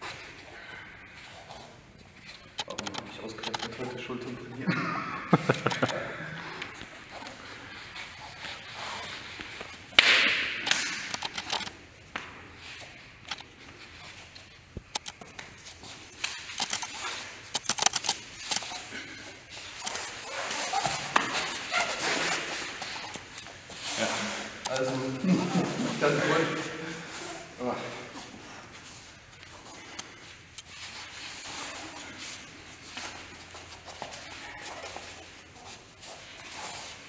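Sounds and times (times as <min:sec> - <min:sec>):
hands slapping forearms: 0:09.4 - 0:11.3.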